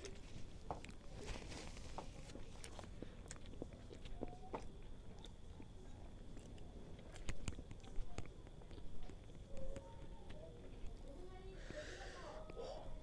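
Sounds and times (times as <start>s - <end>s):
person chewing food: 0.1s - 10.9s.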